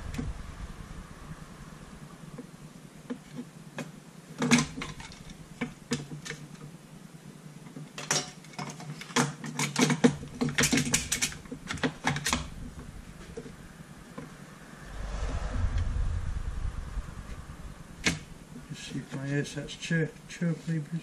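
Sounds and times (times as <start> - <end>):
plastic parts clicking and knocking: 7.8 - 12.4.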